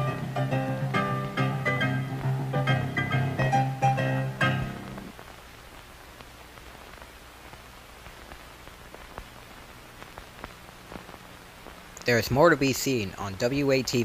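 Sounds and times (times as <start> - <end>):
closing music: 0.0 - 5.1
film soundtrack surface hiss: 0.0 - 14.0
faint clicks: 5.0 - 12.1.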